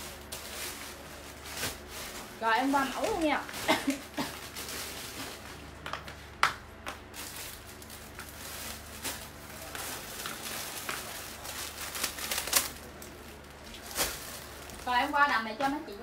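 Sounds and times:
clothes rustling: 0:00.0 - 0:05.8
plastic bag crinkling: 0:00.0 - 0:05.8, 0:07.1 - 0:16.0.

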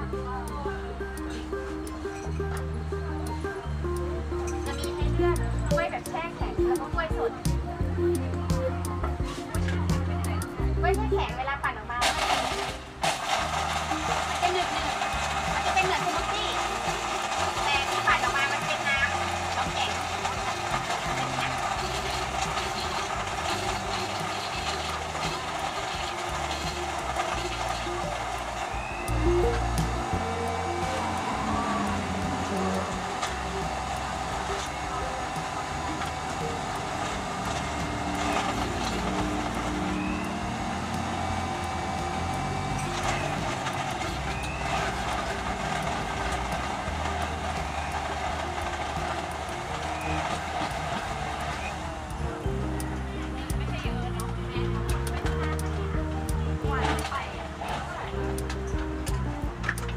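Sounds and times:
blender motor running: 0:12.0 - 0:59.9.

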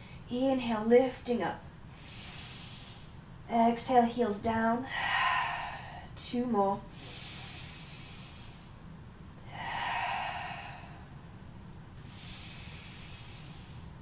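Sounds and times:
woman breathing deeply: 0:01.9 - 0:03.3, 0:04.8 - 0:06.2, 0:06.9 - 0:14.0.

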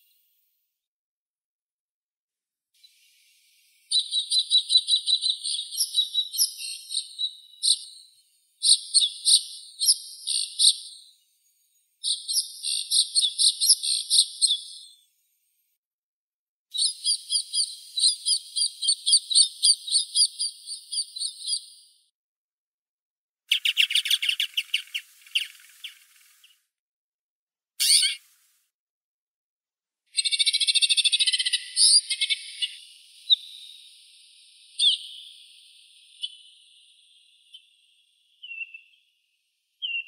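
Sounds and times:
finch chirping rapid high notes: 0:27.8 - 0:28.2.

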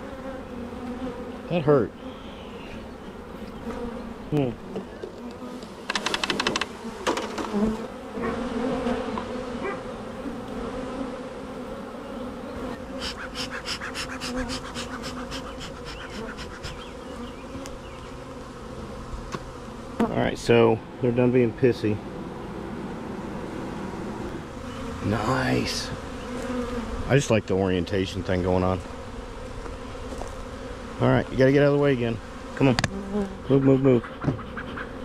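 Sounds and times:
honeybees buzzing: 0:00.0 - 0:35.0
rapid clicking: 0:05.9 - 0:06.7.

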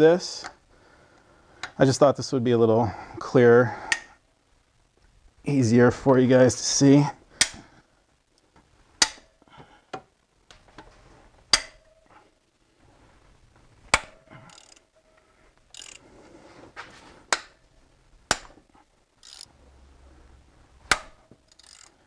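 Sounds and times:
bolts snapping loose: 0:11.5 - 0:11.9, 0:20.9 - 0:21.2
wrench clicks: 0:13.9 - 0:14.9, 0:15.7 - 0:16.0, 0:19.2 - 0:19.5, 0:20.9 - 0:22.0.

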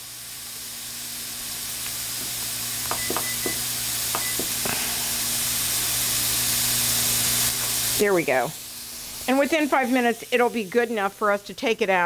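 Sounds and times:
vegetables sizzling in oil: 0:00.0 - 0:12.0
kitchen timer clicks and beeps: 0:02.9 - 0:03.6, 0:04.2 - 0:04.6.

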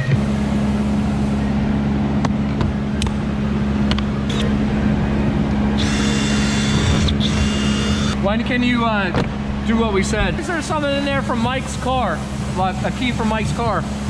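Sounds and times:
steady low hum: 0:00.0 - 0:14.0
cordless drill motor whining: 0:05.8 - 0:08.2.

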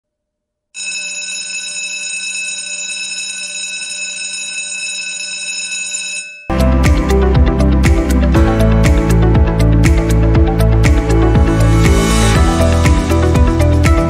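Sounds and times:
electric bell ringing: 0:00.8 - 0:06.6.

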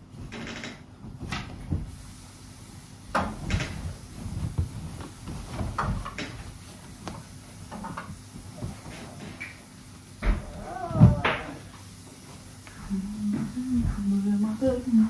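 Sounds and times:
household knocks and clunks: 0:03.1 - 0:06.5.

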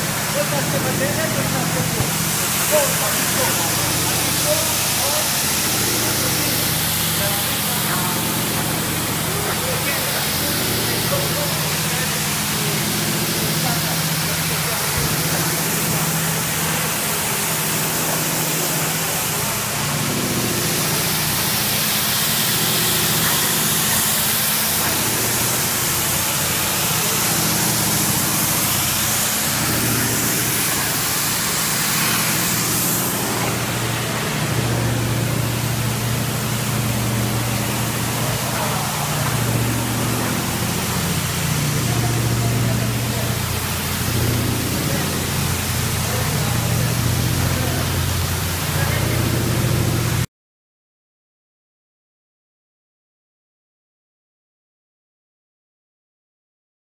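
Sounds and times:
electric gear motors humming: 0:00.0 - 0:50.2
water spraying hiss: 0:00.0 - 0:50.2.

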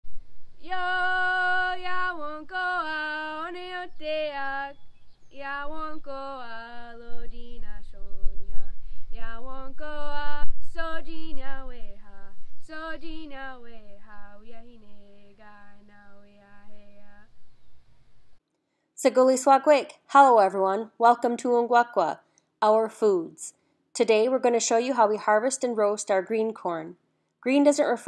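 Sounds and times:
woman singing unaccompanied: 0:00.6 - 0:17.3.

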